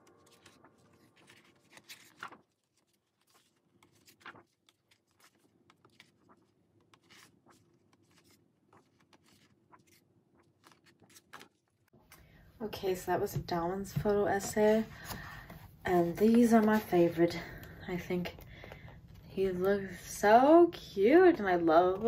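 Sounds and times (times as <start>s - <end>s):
pages flicking over: 0.0s - 11.6s
paper rustling: 0.0s - 11.9s, 13.8s - 17.5s.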